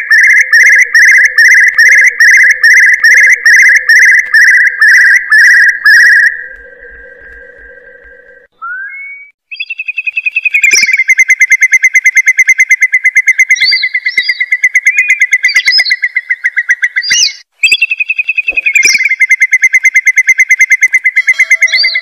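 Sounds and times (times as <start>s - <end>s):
curlew trilling call: 12.7s - 20.2s, 20.8s - 22.0s.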